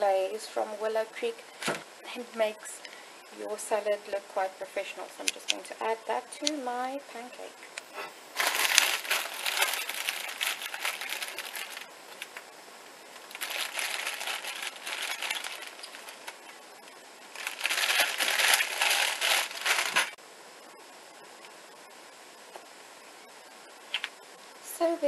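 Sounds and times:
plastic bag crinkling: 0:08.3 - 0:12.5, 0:13.2 - 0:16.6, 0:17.3 - 0:20.2.

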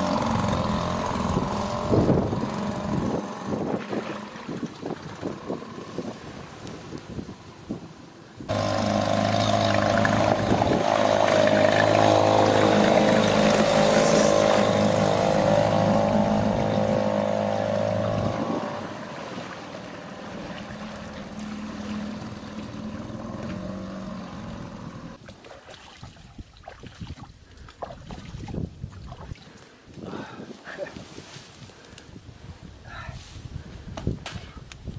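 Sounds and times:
outboard motor running: 0:00.0 - 0:07.3, 0:08.5 - 0:25.2.

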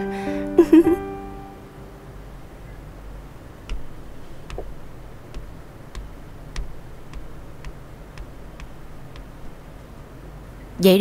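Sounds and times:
slippers clicking on tiled floor: 0:03.6 - 0:09.8
soft thud: 0:03.7 - 0:09.6.

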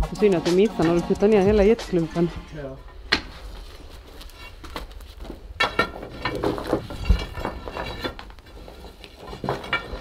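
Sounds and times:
debris knocking and clattering: 0:04.6 - 0:10.0.

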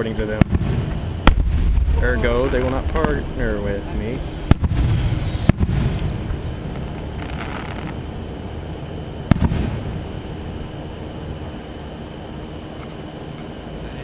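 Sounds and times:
fireworks bursting: 0:00.0 - 0:10.6
sharp firework bang with echo: 0:00.4 - 0:02.0, 0:04.4 - 0:06.0, 0:09.3 - 0:10.0.

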